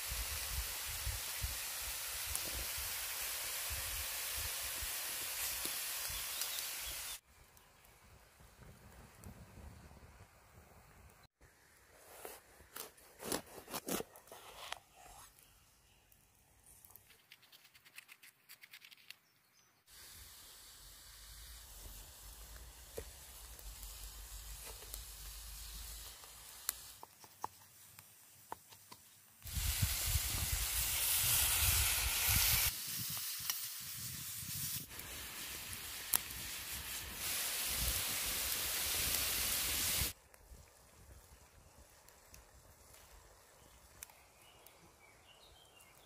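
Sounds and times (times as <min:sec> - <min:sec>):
meat sizzling in a hot pan: 0:00.0 - 0:07.2, 0:20.0 - 0:27.0, 0:29.5 - 0:40.2.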